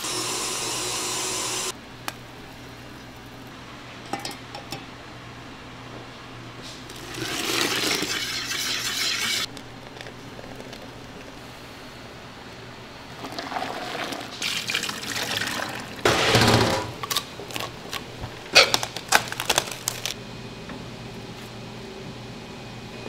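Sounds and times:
liquid pouring and splashing: 13.2 - 16.0.

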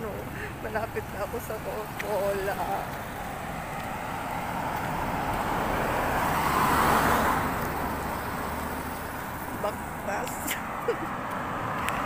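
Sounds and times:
steady traffic noise: 0.0 - 12.0
vehicle passing: 0.0 - 12.0.

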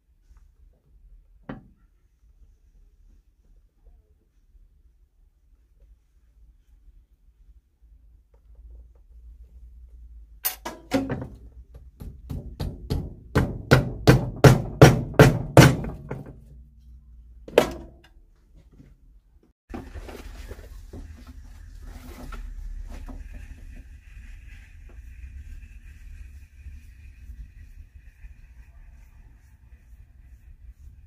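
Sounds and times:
hammer knocking on shoe heel: 12.0 - 16.2.

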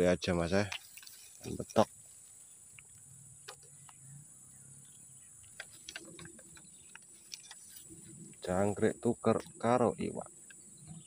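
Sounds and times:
high-pitched insect hum: 0.0 - 11.0.

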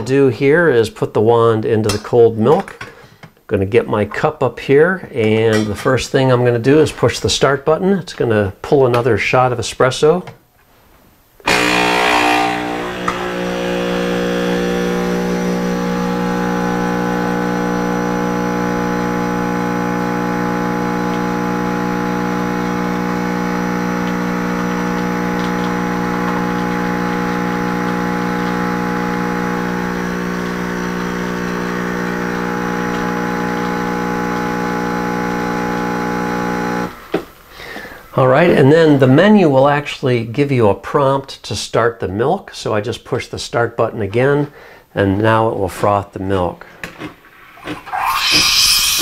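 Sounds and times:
espresso machine pump humming: 11.5 - 37.4, 47.6 - 49.0.

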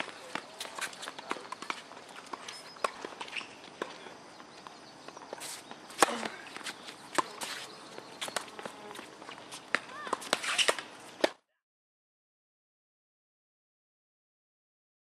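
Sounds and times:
footsteps on hard court: 0.0 - 11.3
tennis racket hitting ball: 5.4 - 11.4.

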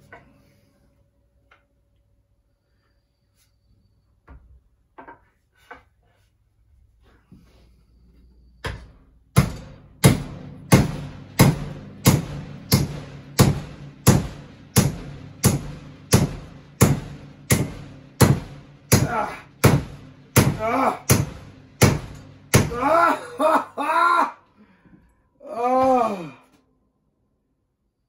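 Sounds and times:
hammer striking wooden wedge: 8.6 - 23.1.

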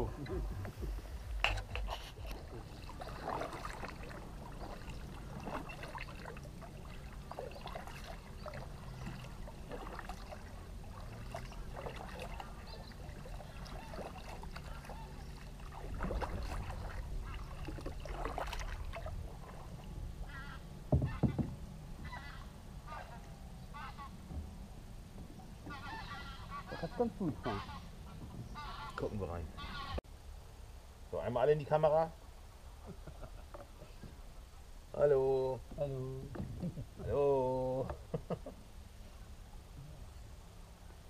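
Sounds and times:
waterfowl calling: 0.0 - 18.8, 20.2 - 24.2, 25.6 - 30.0
paddle knocking against hull: 0.4 - 12.5, 15.6 - 19.0, 20.9 - 21.6, 36.3 - 36.8
paddles dipping into water: 0.4 - 22.2.

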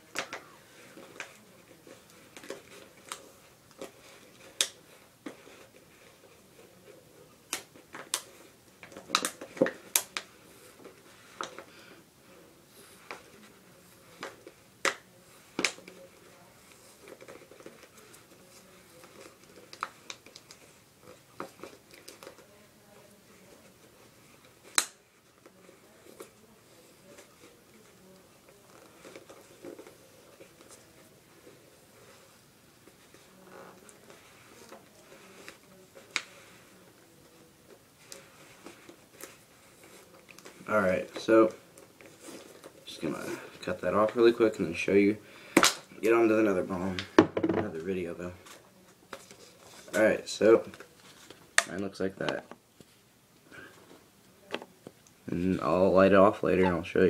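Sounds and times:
electrical tape clicks and snaps: 7.5 - 10.3, 24.7 - 25.0.

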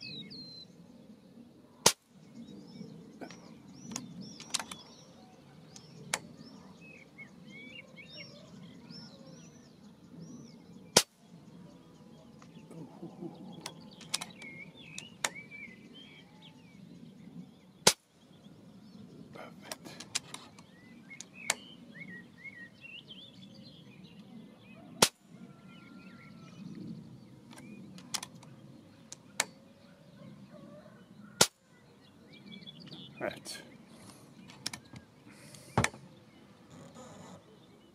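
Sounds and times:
birds chirping: 0.0 - 37.9
air rifle shots: 1.8 - 2.1, 10.9 - 11.2, 17.8 - 18.1, 25.0 - 25.2, 31.4 - 31.6.

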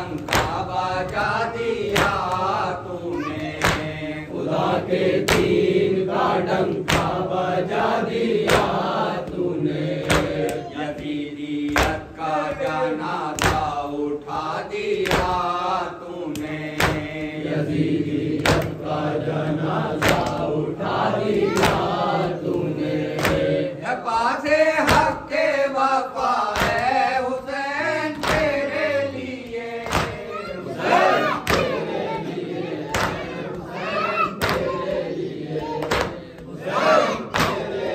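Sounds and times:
hands slapping chests: 0.0 - 5.7, 6.5 - 7.4, 8.4 - 15.7, 16.3 - 17.5, 18.4 - 18.9, 19.9 - 20.6, 21.3 - 23.6, 24.8 - 25.3, 26.4 - 27.0, 28.0 - 37.9
lead reciter chanting: 0.0 - 37.9
men chanting a lament in unison: 0.0 - 37.9.

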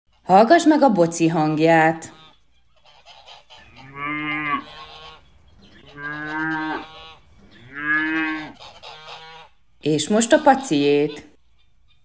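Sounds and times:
cow mooing: 3.6 - 8.6.

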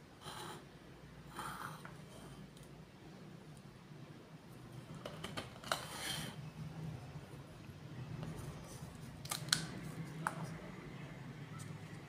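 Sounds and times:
plastic scrape: 4.9 - 6.4.

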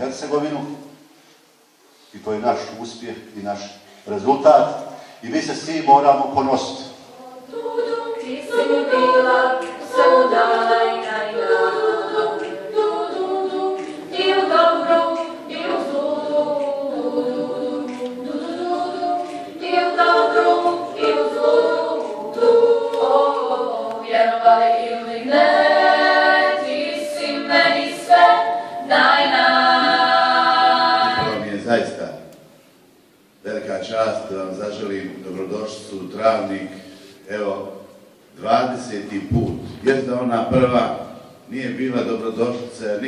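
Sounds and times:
women's choir singing a cappella: 5.5 - 31.9.

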